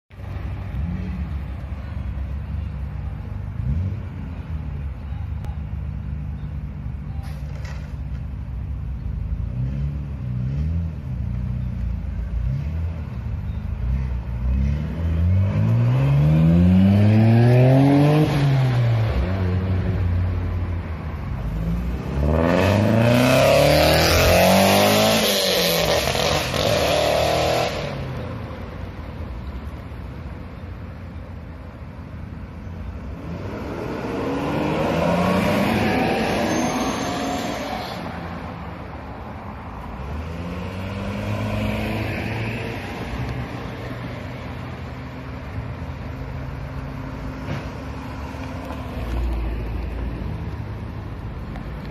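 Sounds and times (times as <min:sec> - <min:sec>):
cars accelerating: 0:09.2 - 0:28.6, 0:32.9 - 0:50.9.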